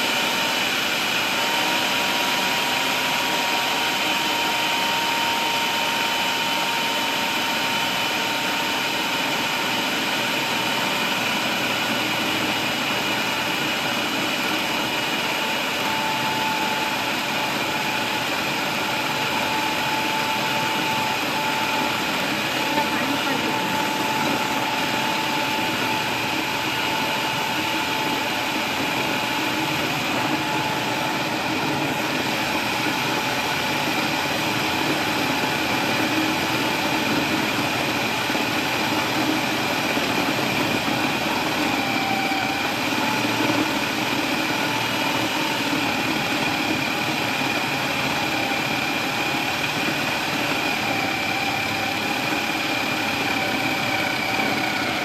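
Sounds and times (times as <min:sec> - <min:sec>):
food processor motor whining: 0:00.0 - 0:55.0.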